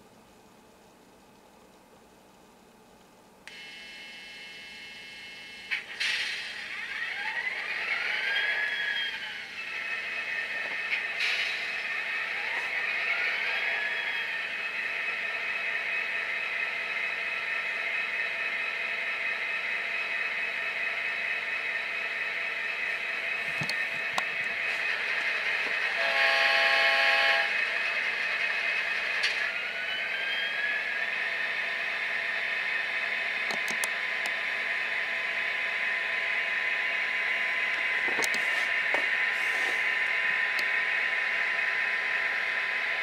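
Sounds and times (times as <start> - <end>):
diesel locomotive engine sound: 0.0 - 43.0
engine revving whine: 3.5 - 43.0
locomotive horn blast: 25.9 - 27.6.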